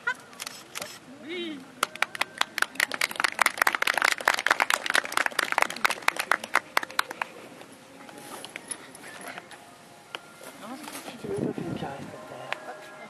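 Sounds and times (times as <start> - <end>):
crowd applauding: 1.8 - 7.4.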